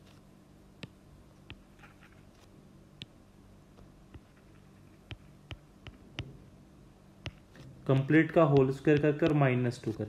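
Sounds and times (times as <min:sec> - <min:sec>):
low steady hum: 0:00.0 - 0:10.0
stylus tapping on tablet: 0:00.8 - 0:01.8, 0:02.4 - 0:06.5, 0:07.2 - 0:10.0.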